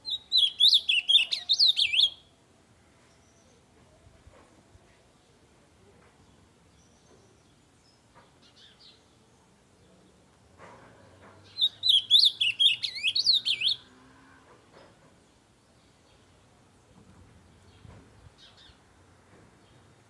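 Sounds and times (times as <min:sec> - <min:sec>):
bird singing warbling phrase: 0:00.1 - 0:02.3, 0:11.5 - 0:13.8.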